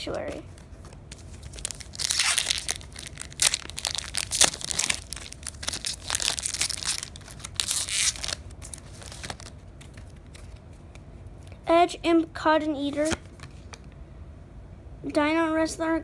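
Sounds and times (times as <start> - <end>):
foil wrapper crinkling and tearing: 1.0 - 10.6.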